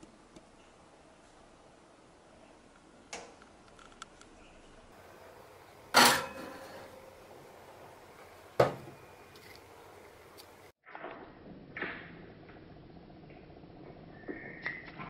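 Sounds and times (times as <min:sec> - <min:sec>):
metal pan clanking on wire rack: 0:05.9 - 0:07.0
oven door shutting: 0:05.9 - 0:07.0.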